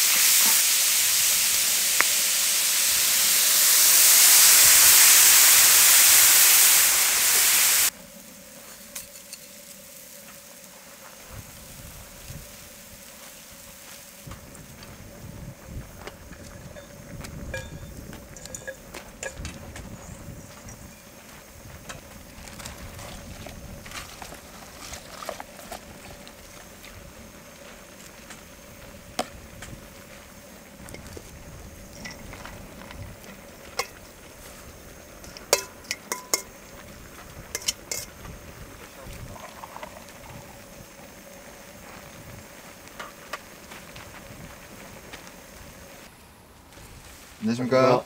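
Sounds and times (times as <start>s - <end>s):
food sizzling in a hot pan: 0.0s - 22.6s, 24.4s - 46.1s
utensils tapping and clinking: 16.8s - 19.6s, 35.2s - 36.6s, 37.5s - 38.2s.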